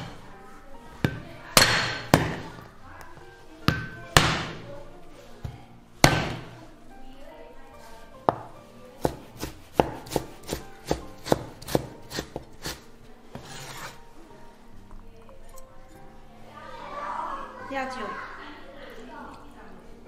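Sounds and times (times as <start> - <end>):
cleaver chopping on wooden board: 6.0 - 6.5, 9.0 - 12.8.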